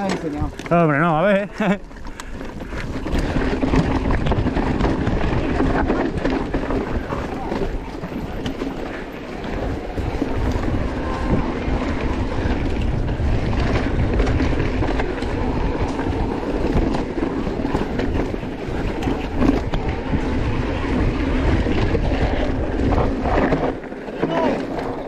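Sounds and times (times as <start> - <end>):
bike rattling and knocking: 0.0 - 25.0
tyre noise on rocky trail: 0.0 - 25.0
wind buffeting microphone: 0.0 - 25.0.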